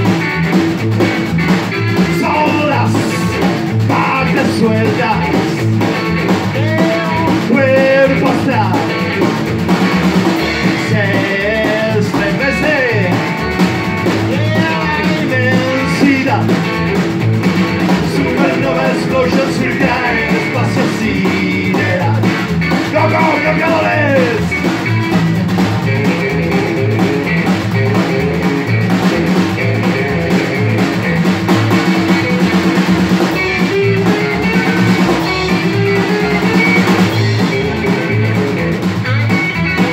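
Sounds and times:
drum kit steady beat: 0.0 - 39.9
electric guitar lead: 0.0 - 39.9
upright double bass: 0.0 - 39.9.

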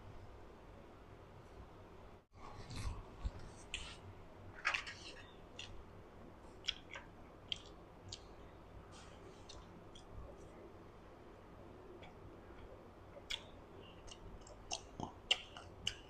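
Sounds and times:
chewing and mouth smacks: 5.6 - 5.8, 6.6 - 10.5, 13.2 - 16.0.

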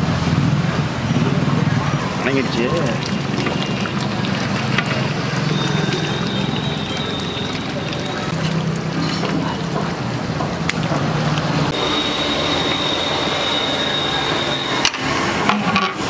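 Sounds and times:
pot sizzling and bubbling: 2.0 - 10.3
thin high whistling tone: 5.4 - 8.3, 11.8 - 14.9.

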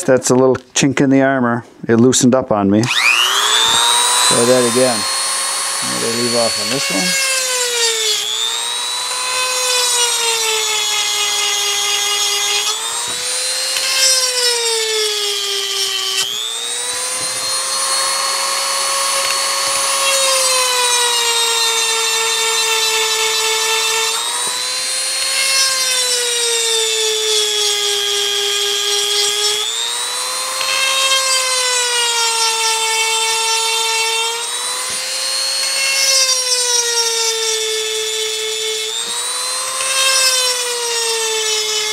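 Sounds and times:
rotary tool whining: 2.8 - 41.9.

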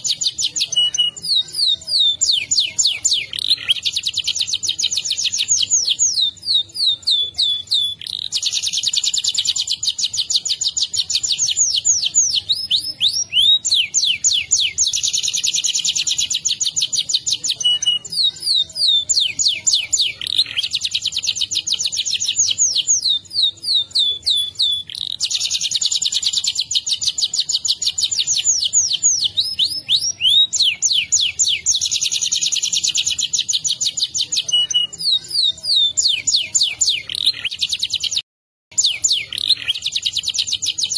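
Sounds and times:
canary singing trills: 0.0 - 40.9.

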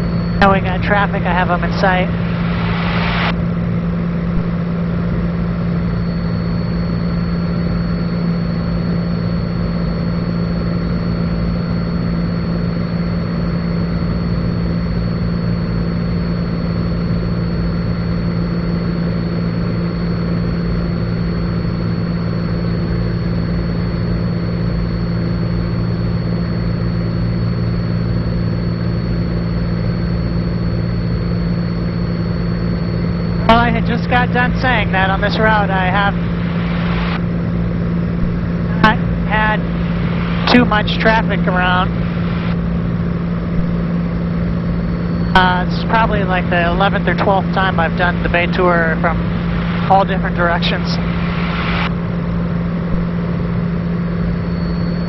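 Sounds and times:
propeller plane engine droning: 0.0 - 55.0.

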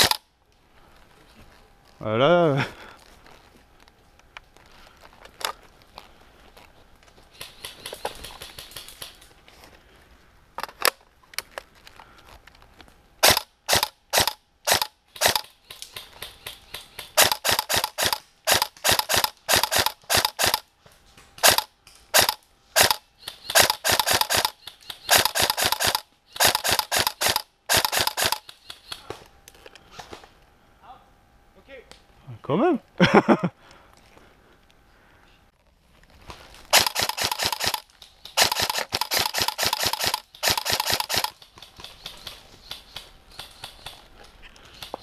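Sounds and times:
airsoft rifle shots: 0.0 - 0.2, 13.2 - 15.5, 16.2 - 20.6, 21.4 - 28.5, 36.7 - 41.4.

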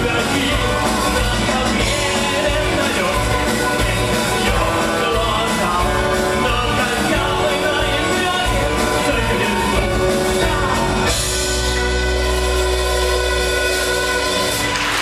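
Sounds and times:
man singing: 0.0 - 11.8
rock band with orchestra: 0.0 - 15.0.

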